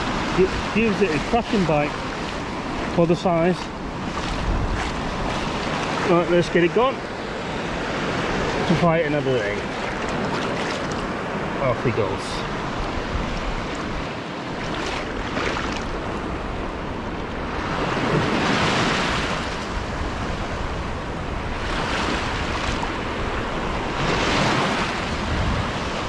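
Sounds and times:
sea surf washing on sand: 0:00.0 - 0:26.0
wind noise on microphone: 0:03.7 - 0:06.1, 0:17.4 - 0:26.0.

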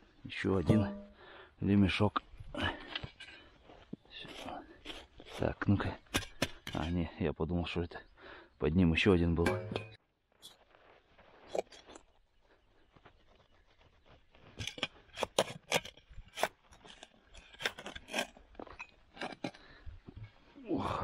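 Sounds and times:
spade digging in stony soil: 0:04.0 - 0:07.0, 0:14.5 - 0:19.6.

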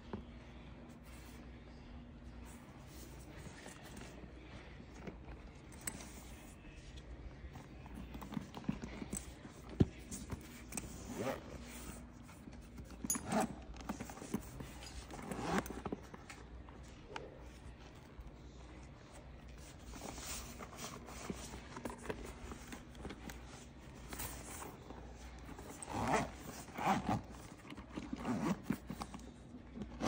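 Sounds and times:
leather bag rustling and scraping: 0:02.2 - 0:30.0
zipper and metal hardware clicks: 0:05.6 - 0:06.5, 0:07.9 - 0:16.4, 0:25.4 - 0:30.0.

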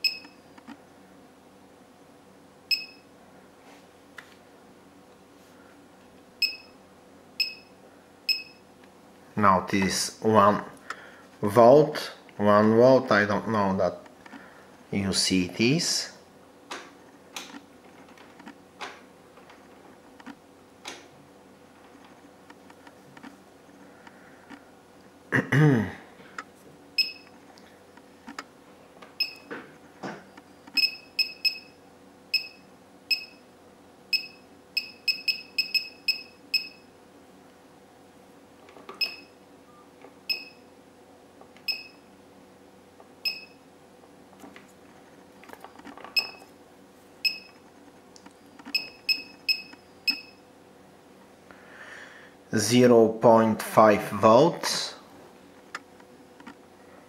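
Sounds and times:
short electronic key beeps: 0:00.0 - 0:00.4, 0:02.7 - 0:03.0, 0:06.4 - 0:06.7, 0:07.4 - 0:07.7, 0:08.3 - 0:08.6, 0:27.0 - 0:27.3, 0:29.2 - 0:29.5, 0:30.8 - 0:31.7, 0:34.1 - 0:36.8, 0:39.0 - 0:40.6, 0:41.7 - 0:42.0, 0:46.2 - 0:46.5, 0:47.2 - 0:47.6, 0:48.7 - 0:50.4.

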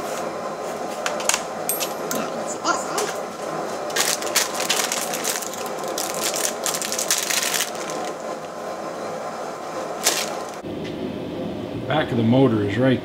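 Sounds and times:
handling electrical wires and plastic parts: 0:03.9 - 0:08.2, 0:10.0 - 0:10.6.

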